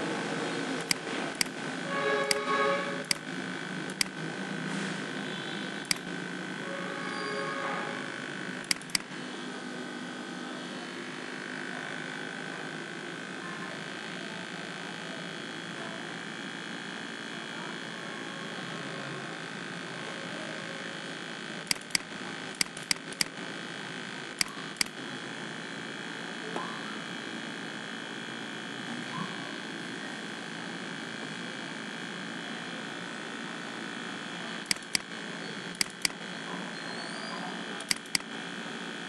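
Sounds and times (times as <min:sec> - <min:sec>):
computer mouse clicks: 0:00.8 - 0:01.6, 0:02.2 - 0:03.2, 0:03.9 - 0:04.2, 0:05.8 - 0:06.1, 0:08.6 - 0:09.1, 0:21.7 - 0:23.4, 0:24.4 - 0:25.0, 0:34.7 - 0:35.1, 0:35.8 - 0:36.2, 0:37.8 - 0:38.3.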